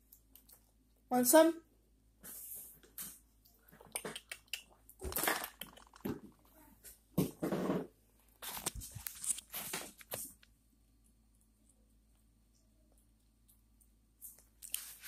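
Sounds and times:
rustling: 7.4s - 10.5s.

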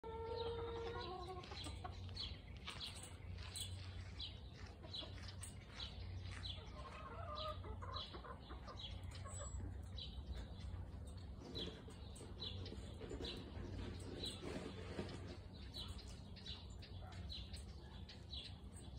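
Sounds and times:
hens clucking softly: 6.6s - 10.5s.

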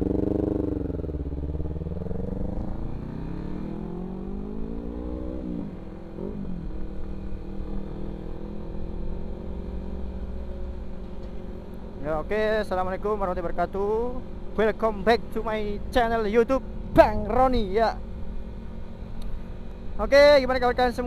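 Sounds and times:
motorcycle engine accelerating: 0.0s - 11.7s.

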